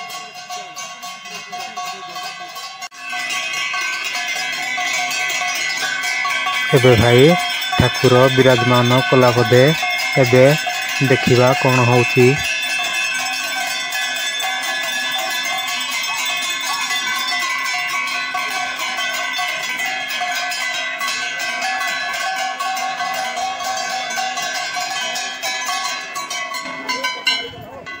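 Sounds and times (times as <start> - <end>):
metal bells jangling: 0.0 - 28.0.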